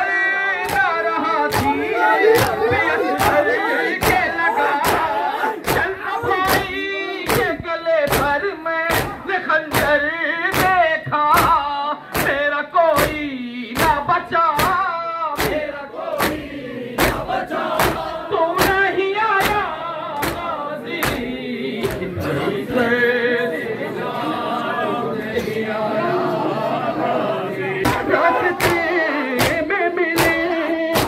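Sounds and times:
men chanting in unison: 0.0s - 31.0s
open-hand slaps on chests: 0.6s - 22.1s, 27.8s - 31.0s.

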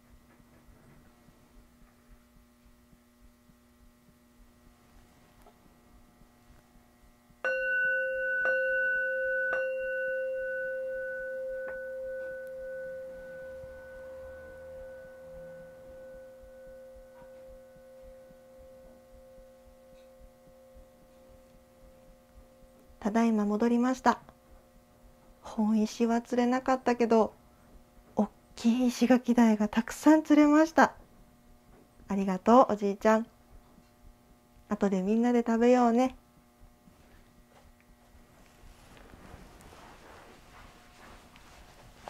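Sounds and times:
faint steady hum: 0.0s - 42.0s
altar bell ringing: 7.4s - 23.8s.

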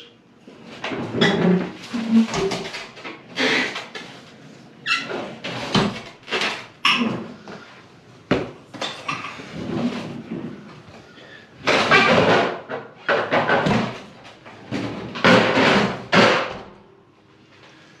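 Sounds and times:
metal bangs knocks and scrapes: 11.6s - 16.8s.

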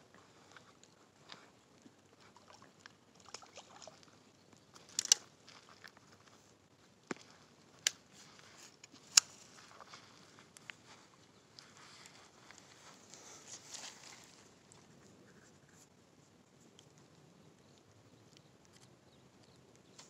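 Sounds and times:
handling rustling: 7.1s - 15.9s.

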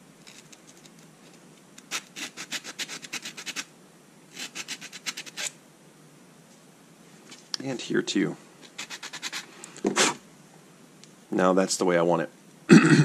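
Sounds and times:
sandpaper scratching plastic: 0.3s - 3.7s, 4.3s - 5.6s, 8.6s - 10.2s.

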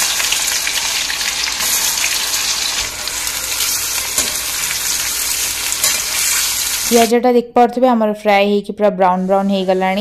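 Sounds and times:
onions sizzling in hot oil: 0.0s - 7.1s.

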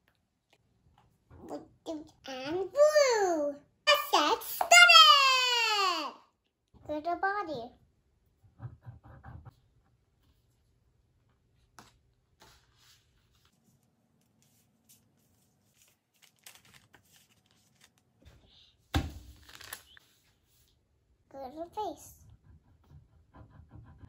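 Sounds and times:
paper rustling and tapping: 15.7s - 18.0s.

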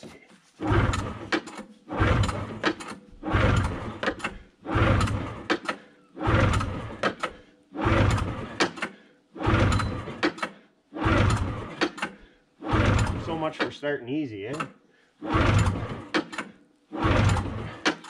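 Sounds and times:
engine cranking on pull start: 0.6s - 13.8s, 14.5s - 18.0s.

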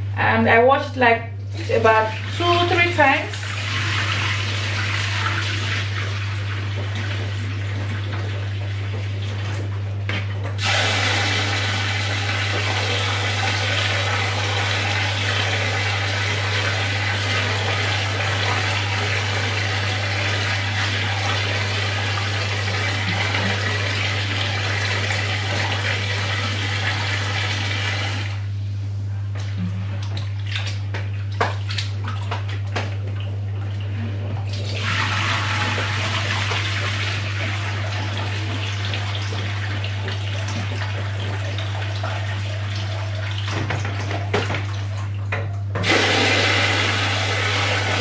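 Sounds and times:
tap running water into bowl: 3.6s - 11.0s, 30.1s - 33.1s, 34.7s - 42.3s, 43.4s - 48.0s.

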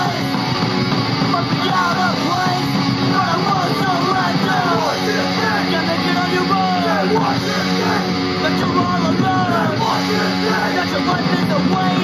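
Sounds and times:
punk rock from a record: 0.0s - 12.0s.

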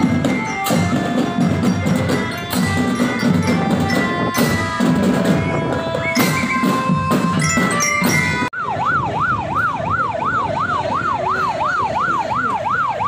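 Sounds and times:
marching band drums and bell lyres: 0.0s - 8.6s
police siren yelping: 0.1s - 13.0s.

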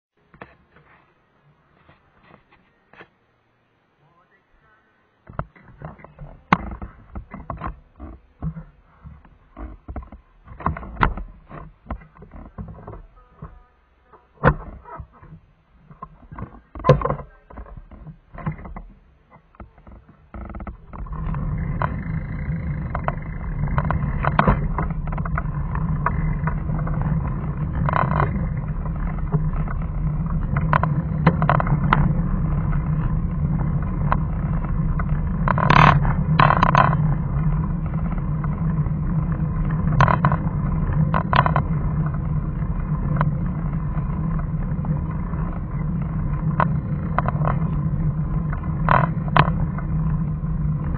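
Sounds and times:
rustles: 0.2s - 50.9s
knocks and rattles: 5.3s - 13.6s, 14.3s - 50.9s
vehicle engine hum: 17.3s - 50.9s
road and wind noise: 19.6s - 50.9s.

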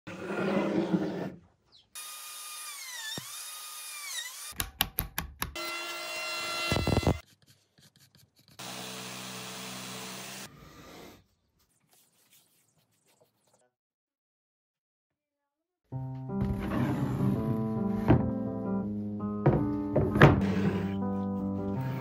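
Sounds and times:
power tool running steadily: 8.6s - 10.5s.

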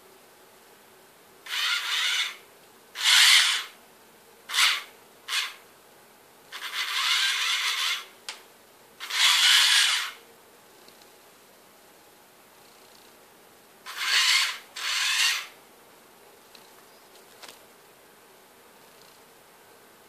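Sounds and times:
small electric motors whirring: 13.9s - 15.5s.

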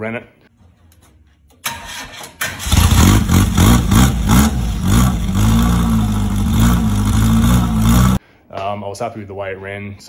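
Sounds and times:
engine revving and running: 2.6s - 8.2s.

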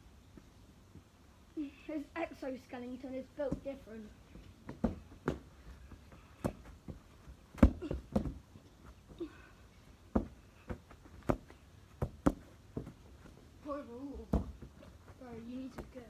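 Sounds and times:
football being kicked: 7.5s - 8.4s, 10.1s - 13.0s, 14.2s - 14.7s.

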